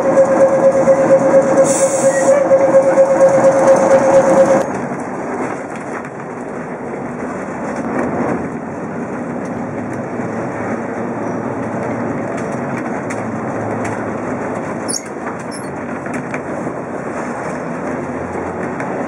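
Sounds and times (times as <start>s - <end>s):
tram wheels rumbling on rails: 0.0s - 19.0s
high squeak: 0.2s - 4.6s, 14.9s - 15.8s.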